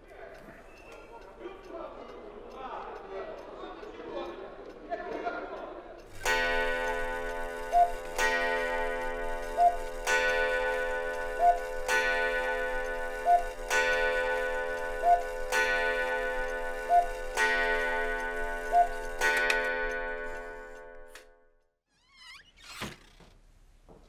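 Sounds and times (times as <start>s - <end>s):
clock ticking: 0.0s - 21.2s
cuckoo clock pipe tone: 6.2s - 19.6s.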